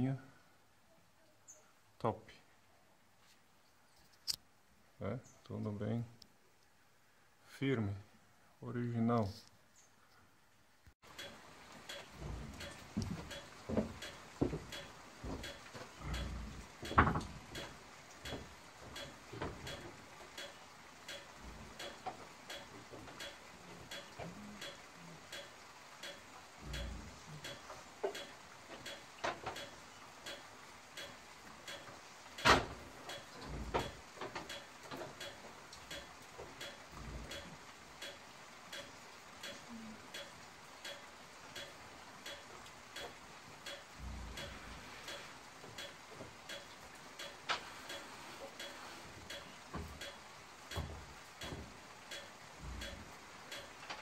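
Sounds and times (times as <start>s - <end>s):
steady faint ticking: 8.8s - 54.0s.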